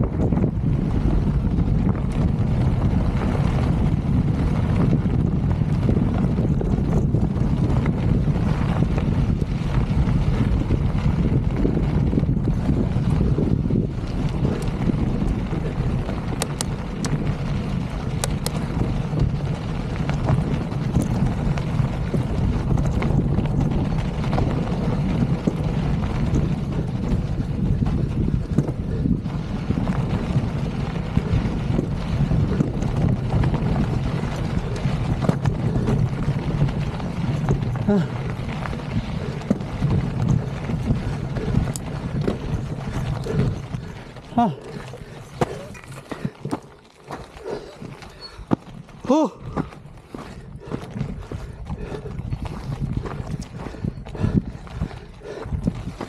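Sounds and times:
bike tyres rolling on gravel: 0:00.0 - 0:56.0
wind buffeting microphone: 0:00.0 - 0:56.0
small clicks and rattles: 0:05.7 - 0:29.2, 0:29.8 - 0:48.5.

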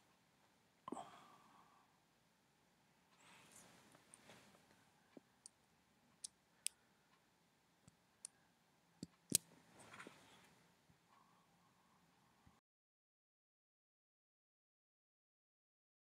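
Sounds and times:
soft hiss: 0:00.0 - 0:12.6.

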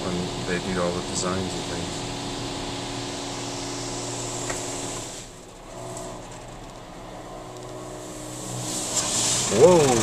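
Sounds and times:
low machine hum: 0:00.0 - 0:10.0
water spray hissing on car: 0:08.0 - 0:10.0.

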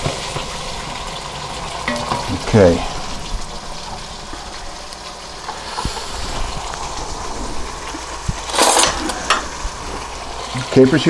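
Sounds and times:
sauce sizzling and bubbling: 0:00.0 - 0:11.0.

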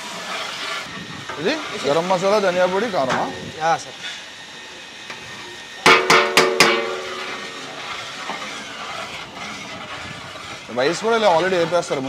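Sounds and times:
metal bowl knocking on metal pot: 0:05.9 - 0:07.1.

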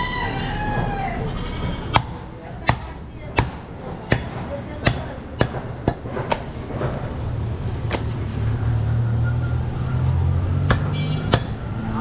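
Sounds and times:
cleaver chopping on wooden block: 0:10.6 - 0:11.6.

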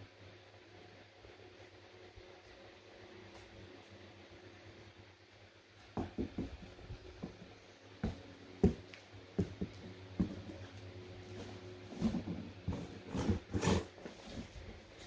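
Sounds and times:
faint steady hum: 0:00.0 - 0:15.0
cardboard box being handled: 0:11.3 - 0:15.0.

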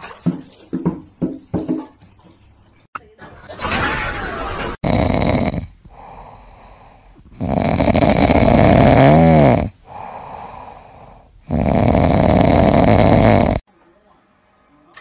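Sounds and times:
cat snoring loudly: 0:04.7 - 0:13.6.

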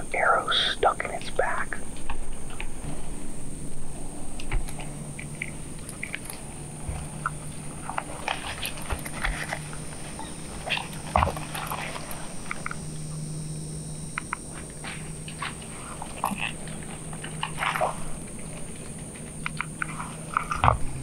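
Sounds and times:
hogs grunting: 0:04.0 - 0:13.1, 0:14.5 - 0:21.0.

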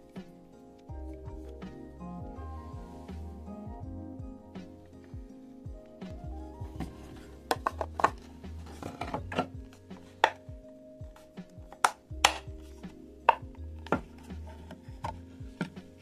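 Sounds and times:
soft background music: 0:00.0 - 0:16.0.

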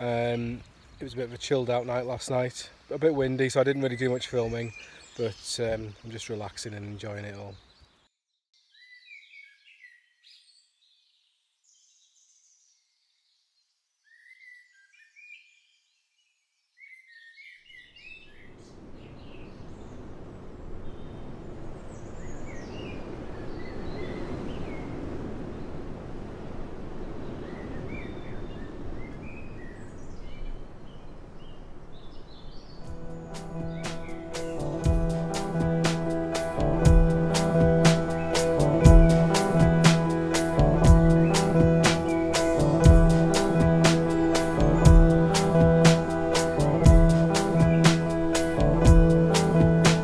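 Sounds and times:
small birds chirping: 0:00.0 - 0:50.0
wind noise: 0:18.5 - 0:50.0.

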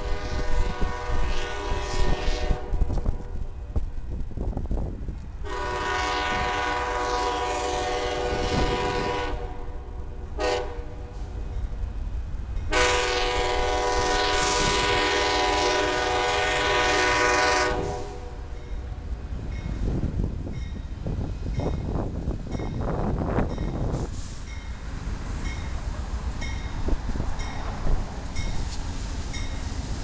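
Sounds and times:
train air horn blasts: 0:00.0 - 0:03.6, 0:05.4 - 0:11.6, 0:12.7 - 0:18.7.

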